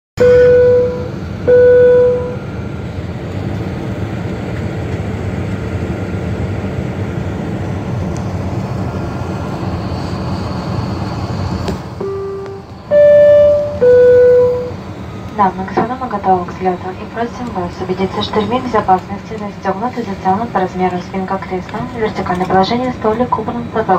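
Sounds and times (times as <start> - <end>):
jet engine low rumble: 0.2 - 23.9
cabin chime tones: 12.0 - 14.7.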